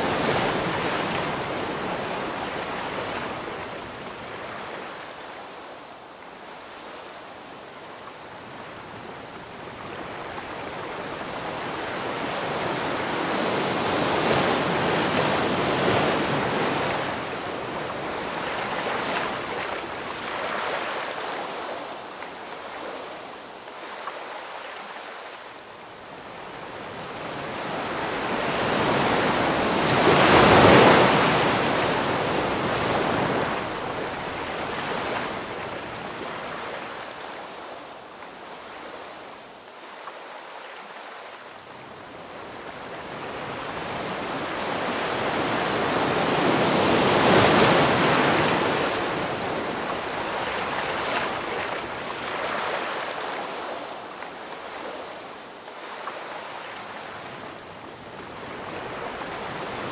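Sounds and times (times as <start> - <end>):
small waves lapping at shore: 0.0 - 59.9.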